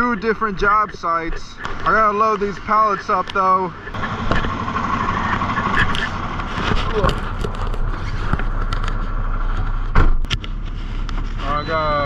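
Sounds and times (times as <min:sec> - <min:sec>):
diesel truck engine idling: 0:01.8 - 0:09.9.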